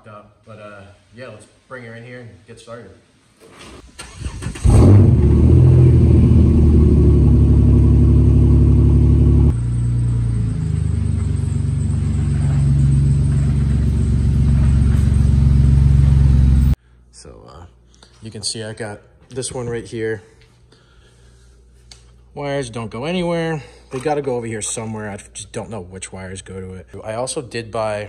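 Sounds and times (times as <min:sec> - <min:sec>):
car engine starting and running: 0:03.9 - 0:16.8.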